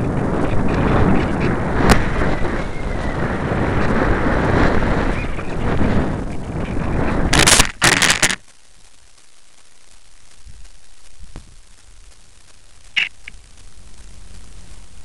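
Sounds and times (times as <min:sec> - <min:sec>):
wind rushing over camera: 0:00.0 - 0:08.6
low hiss: 0:00.0 - 0:15.0.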